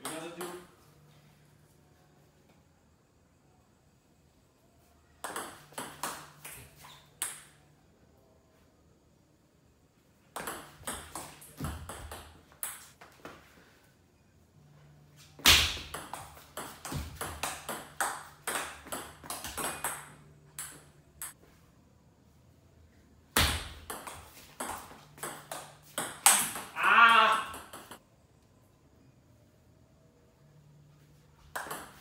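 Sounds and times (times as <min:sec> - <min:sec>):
faint low hum: 0:00.0 - 0:26.2, 0:28.0 - 0:32.0
ball bouncing on table: 0:05.2 - 0:07.6, 0:10.4 - 0:12.9, 0:23.4 - 0:28.0, 0:31.5 - 0:32.0
ping pong ball clicking off paddles: 0:05.2 - 0:07.6, 0:15.8 - 0:21.4, 0:23.4 - 0:28.0, 0:31.5 - 0:32.0.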